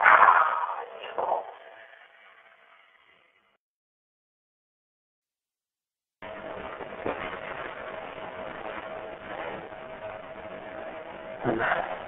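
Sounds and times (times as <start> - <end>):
thin steady hum: 6.2 - 12.0.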